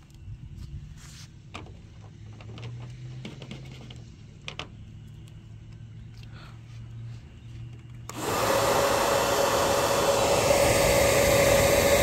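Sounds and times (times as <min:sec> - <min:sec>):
small motor whirring: 0:08.1 - 0:12.0.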